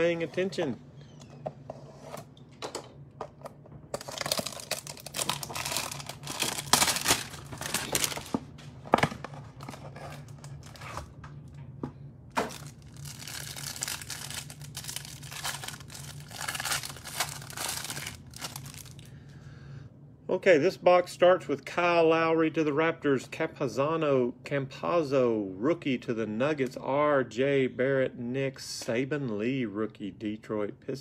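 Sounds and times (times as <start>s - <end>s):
plastic and cardboard tearing: 4.0s - 8.4s, 12.4s - 18.9s.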